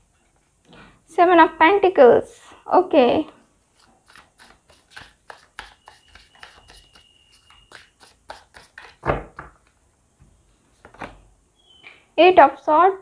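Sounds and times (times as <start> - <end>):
cards being shuffled: 3.7 - 9.8.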